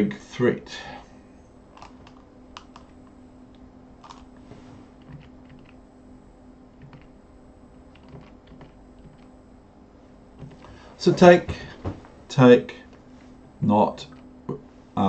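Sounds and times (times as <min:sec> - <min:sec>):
low steady hum: 0:00.0 - 0:15.0
computer keys clicking: 0:01.8 - 0:03.0, 0:05.0 - 0:05.8, 0:06.8 - 0:07.1, 0:07.9 - 0:09.3.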